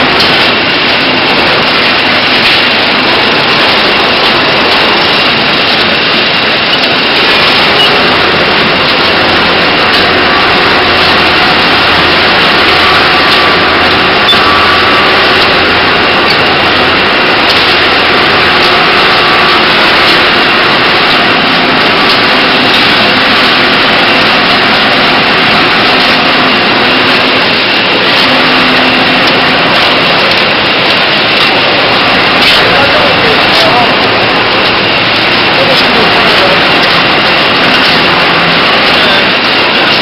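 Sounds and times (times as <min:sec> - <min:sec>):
low hum: 0:00.0 - 0:40.0
machinery mechanical din: 0:00.0 - 0:40.0.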